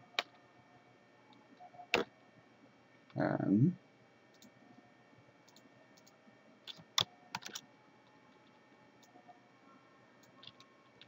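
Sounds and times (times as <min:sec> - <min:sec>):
computer keyboard keystrokes: 0:06.7 - 0:07.6.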